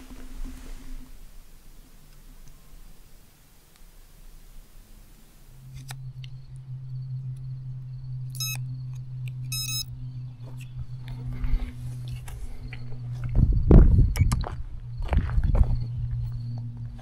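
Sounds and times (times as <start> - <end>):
steady low hum: 0.0 - 17.0
short electronic beeps: 8.3 - 9.9, 14.1 - 14.4.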